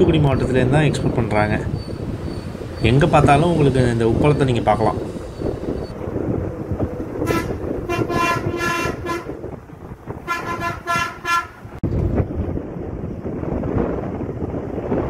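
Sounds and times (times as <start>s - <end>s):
bus engine and road noise: 0.0s - 15.0s
bus horn tooting: 7.2s - 9.5s, 10.2s - 11.8s.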